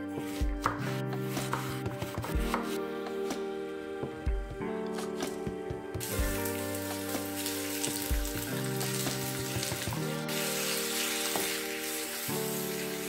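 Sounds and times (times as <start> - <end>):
vegetables sizzling in oil: 6.0 - 13.0.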